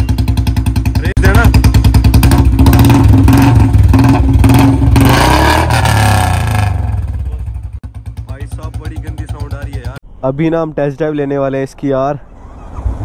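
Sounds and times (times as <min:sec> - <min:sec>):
motorcycle engine revving: 0:00.0 - 0:10.0.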